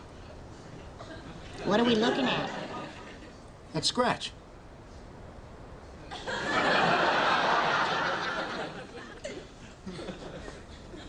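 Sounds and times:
studio audience laughing: 1.3s - 3.4s, 6.1s - 11.0s.

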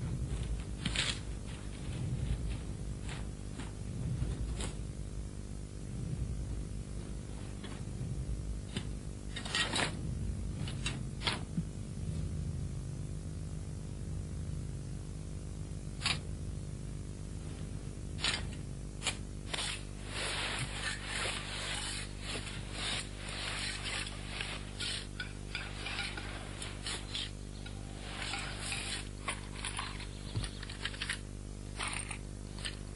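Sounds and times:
steady low hum: 0.0s - 32.9s
shovel scraping soil: 18.2s - 31.2s.

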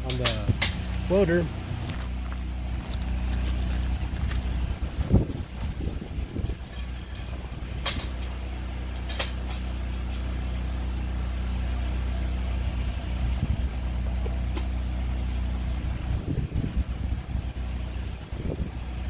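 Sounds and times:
welding machine humming: 0.6s - 15.8s
light metal clinks: 6.6s - 10.4s.

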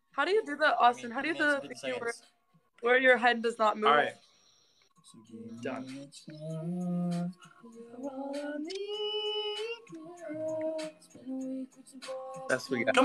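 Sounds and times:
person singing unaccompanied: 0.9s - 2.2s, 5.1s - 13.0s.

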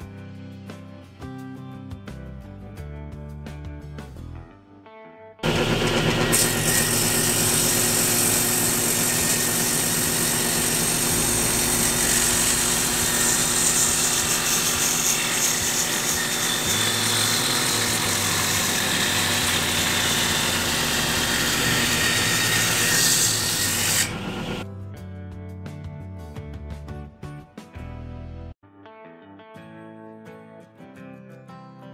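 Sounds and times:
table saw cutting wood: 5.4s - 24.6s.

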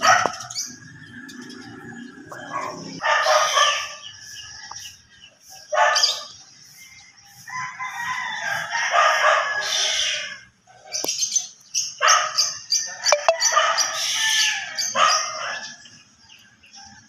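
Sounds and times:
rooster crowing: 7.4s - 10.4s.

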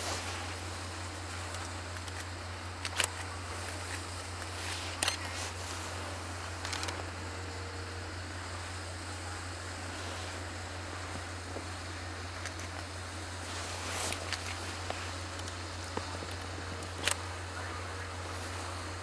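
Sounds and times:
low hum and hiss: 0.0s - 19.0s
camera shutter clicks: 6.6s - 7.0s.

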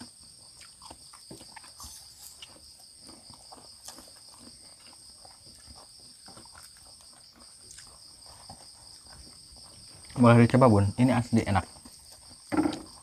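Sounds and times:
person chewing: 0.0s - 10.2s
crickets trilling: 0.0s - 13.0s.

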